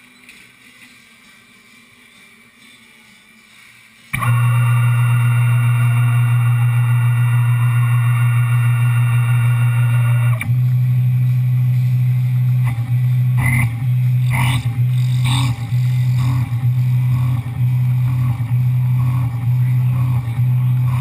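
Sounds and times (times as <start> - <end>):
high-pitched whine: 0.0 - 21.0
milling machine humming: 4.1 - 21.0
sharp cutting noises: 12.6 - 21.0.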